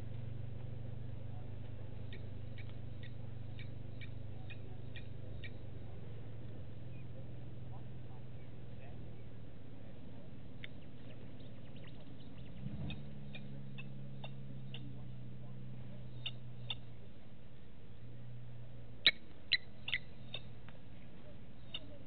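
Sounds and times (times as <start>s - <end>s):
steady low hum: 0.0s - 22.0s
bird chirps: 1.3s - 5.8s, 10.5s - 17.3s, 19.0s - 22.0s.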